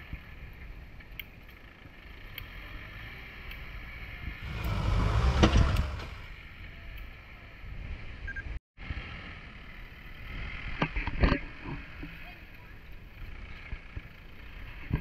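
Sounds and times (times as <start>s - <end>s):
diesel engine rumbling: 1.5s - 6.5s.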